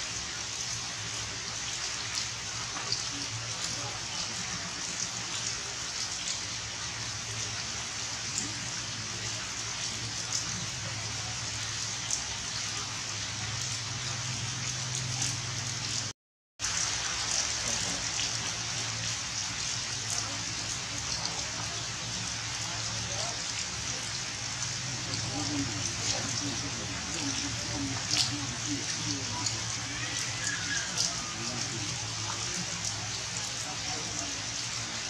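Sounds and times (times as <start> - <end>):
drips: 0.0 - 35.0
steady rain falling: 0.0 - 35.0.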